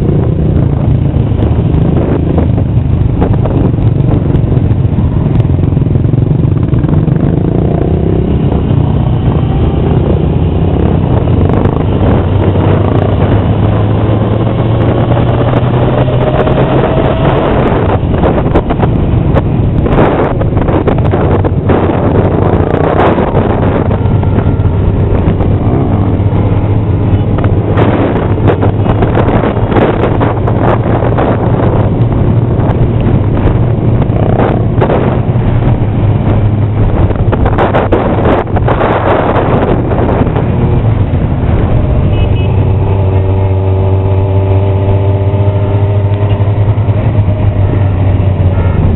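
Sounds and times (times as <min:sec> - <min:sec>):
motorcycle engine running: 0:00.0 - 0:48.9
wind buffeting microphone: 0:00.0 - 0:48.9.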